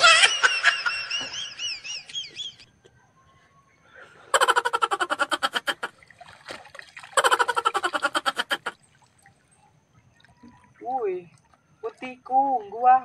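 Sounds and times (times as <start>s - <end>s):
water splashing: 5.7s - 12.7s
water pouring through net mesh: 6.0s - 7.9s.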